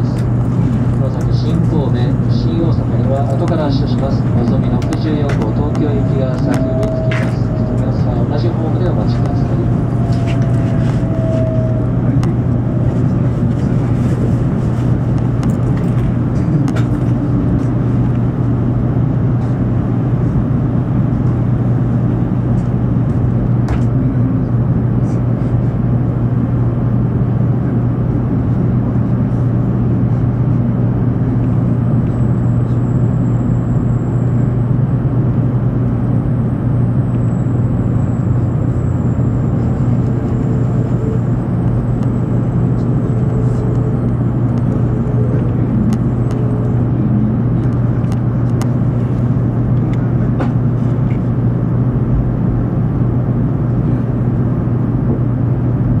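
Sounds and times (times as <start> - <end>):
faint high whine: 0.0 - 18.5, 31.2 - 49.7
deep train hum: 0.0 - 56.0.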